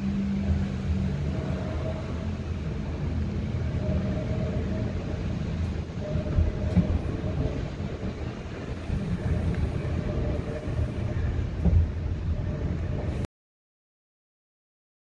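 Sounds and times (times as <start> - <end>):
faint steady hum: 0.0 - 13.3
train wheels rumbling on rails: 0.0 - 13.3
train knocks: 3.7 - 13.2.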